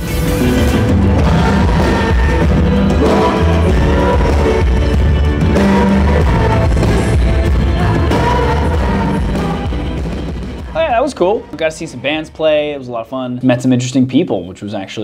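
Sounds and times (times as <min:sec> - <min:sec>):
acoustic guitar: 0:00.0 - 0:10.9
live band playing: 0:00.0 - 0:12.1
heavy bass: 0:00.0 - 0:12.7
person singing: 0:01.0 - 0:11.6.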